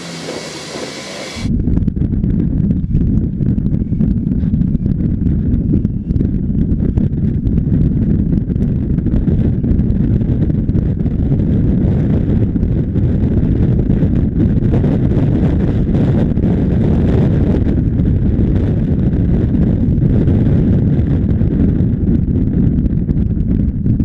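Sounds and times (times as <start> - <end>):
jet engines taking off: 0.0 - 1.5
wind buffeting microphone: 0.0 - 24.0.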